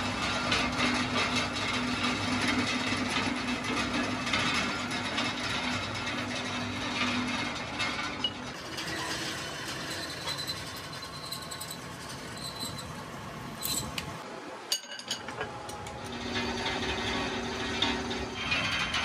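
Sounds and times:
metal parts clinking: 0:13.6 - 0:14.0.

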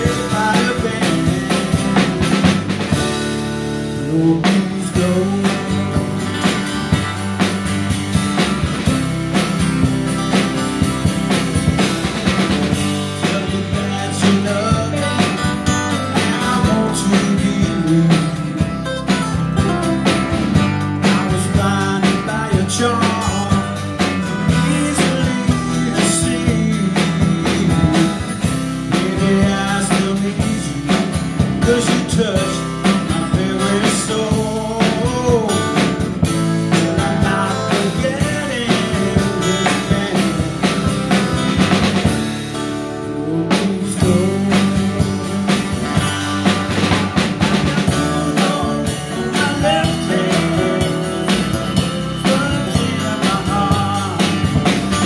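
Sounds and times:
man singing into a microphone: 0:00.0 - 0:02.6, 0:03.6 - 0:06.4, 0:12.7 - 0:18.8, 0:20.8 - 0:41.2, 0:43.0 - 0:46.5, 0:47.5 - 0:55.0
acoustic guitars strummed: 0:00.0 - 0:55.0
bass guitar: 0:00.0 - 0:55.0
drum kit beat: 0:00.0 - 0:55.0.

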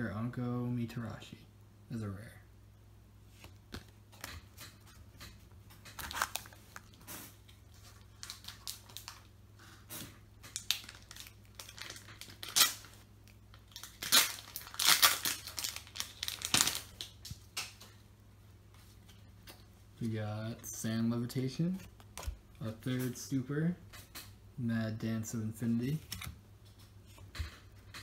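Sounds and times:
wrapper tearing and crinkling: 0:05.8 - 0:07.3, 0:07.9 - 0:09.3, 0:10.5 - 0:17.3.

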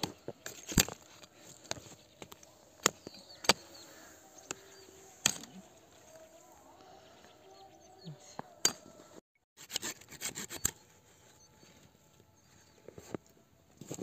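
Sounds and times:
hatchet chopping branches: 0:00.0 - 0:03.7, 0:05.2 - 0:05.6.

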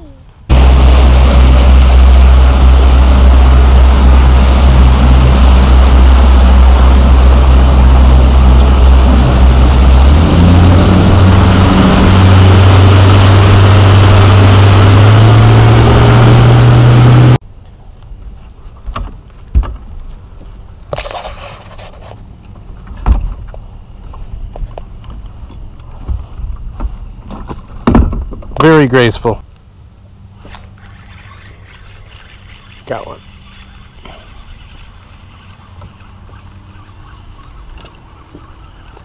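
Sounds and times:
loud rushing noise: 0:00.5 - 0:17.4
outboard motor running: 0:00.5 - 0:17.4, 0:30.2 - 0:39.0.

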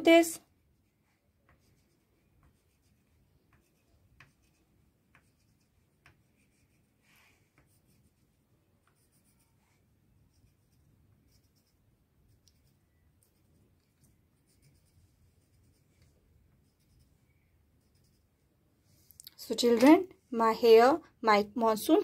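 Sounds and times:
crayon scratching on paper: 0:00.8 - 0:17.2, 0:17.8 - 0:18.4.

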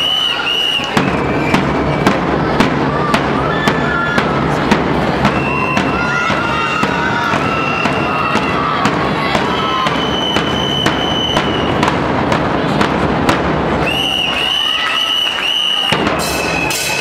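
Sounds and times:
high whistle: 0:00.0 - 0:01.8, 0:05.3 - 0:06.1, 0:09.6 - 0:11.8, 0:13.8 - 0:17.0
bass drums with cymbals: 0:00.9 - 0:14.5, 0:15.8 - 0:17.0.

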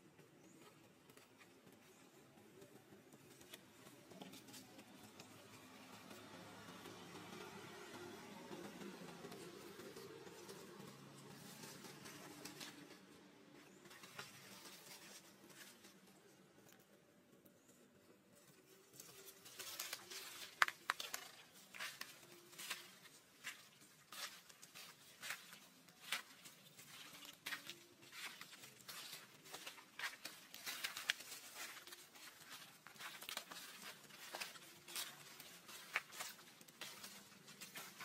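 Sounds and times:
footsteps crunching dry leaves: 0:19.0 - 0:38.0.

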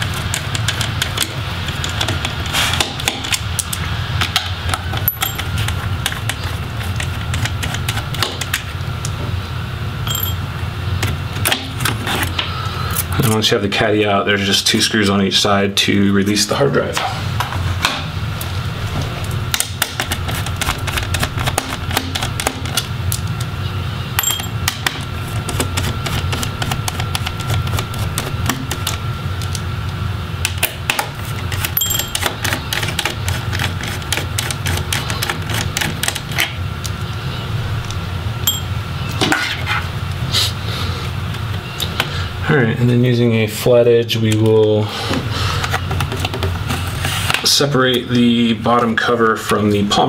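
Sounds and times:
steady low hum: 0:00.0 - 0:50.0.

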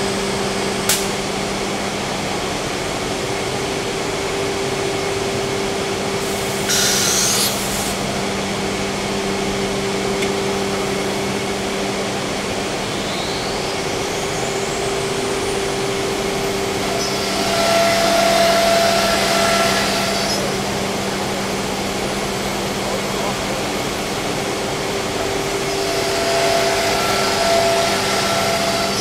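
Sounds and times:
router machine hum: 0:00.0 - 0:29.0
router bit whining: 0:06.5 - 0:12.2, 0:15.1 - 0:29.0.

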